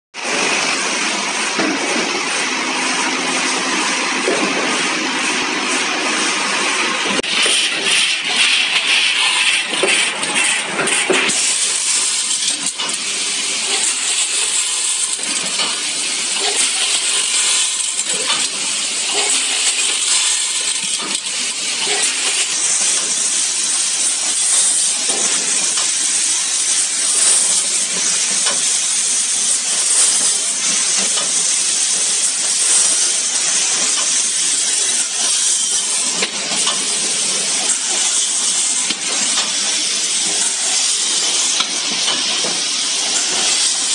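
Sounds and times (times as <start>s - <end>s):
nails rattling in metal pans: 7.2s - 11.4s.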